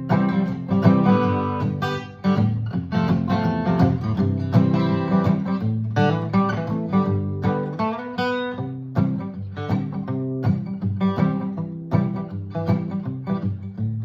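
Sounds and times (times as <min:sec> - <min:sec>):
acoustic guitar strumming: 0:00.0 - 0:14.0.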